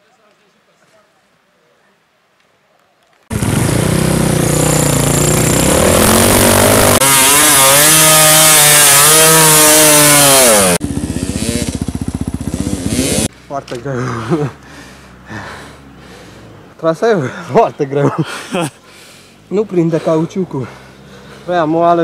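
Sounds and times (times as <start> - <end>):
two-stroke motorcycle engine revving: 3.3 - 13.3.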